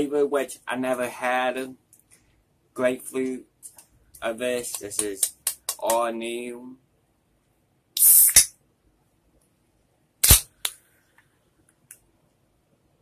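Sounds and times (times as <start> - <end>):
can fizzing hiss: 8.0 - 8.5.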